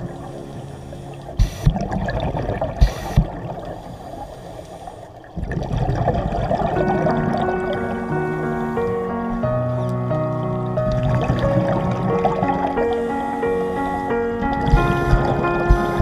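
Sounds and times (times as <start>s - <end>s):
diver breathing through regulator: 0.0s - 2.0s, 2.8s - 5.3s, 7.7s - 9.4s, 12.4s - 16.0s
exhaled bubbles rumbling: 0.0s - 16.0s.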